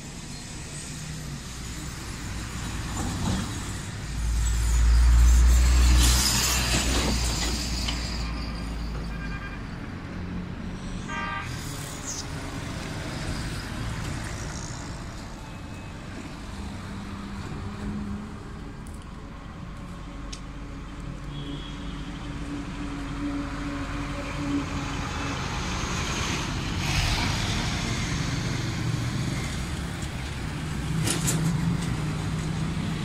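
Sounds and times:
road traffic passing: 0:00.0 - 0:33.0
short horn toot: 0:11.0 - 0:11.6.

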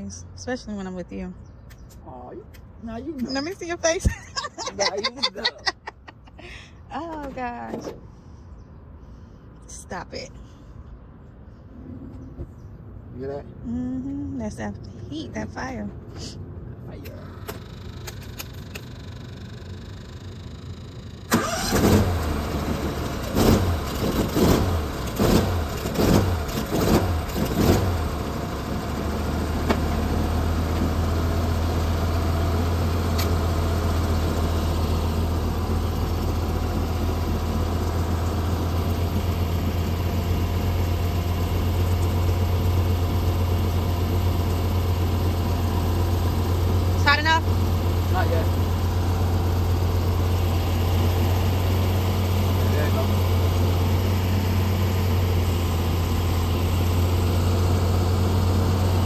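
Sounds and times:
engine starting and running: 0:15.4 - 0:59.0.

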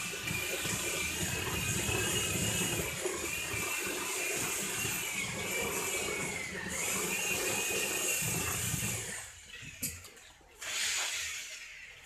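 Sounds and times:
power tool motor whining: 0:00.0 - 0:09.9.

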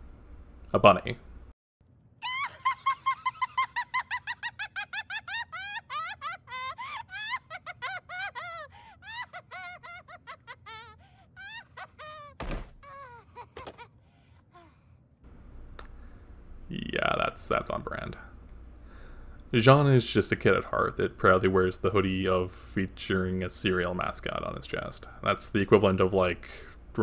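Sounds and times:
girl laughing: 0:02.2 - 0:14.0.

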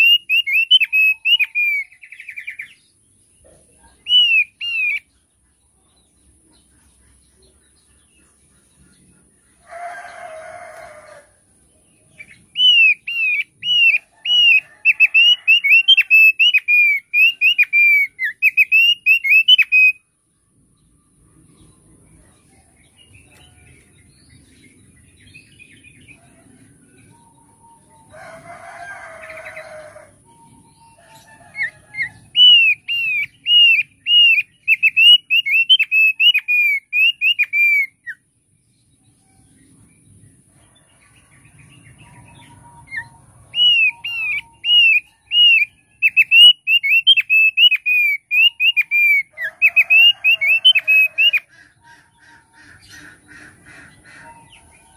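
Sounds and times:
bird whistling song: 0:00.0 - 0:02.8, 0:04.0 - 0:05.1, 0:12.2 - 0:20.0, 0:30.3 - 0:38.2, 0:42.3 - 0:51.5
coarse bird call: 0:42.0 - 0:54.9.

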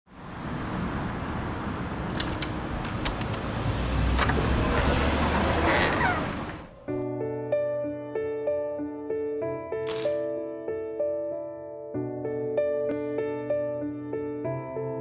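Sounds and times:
car passing with low rumble: 0:00.1 - 0:06.8
street traffic noise: 0:00.1 - 0:06.9
sharp metallic clicks: 0:02.1 - 0:03.4
falling squeak: 0:05.5 - 0:06.7.

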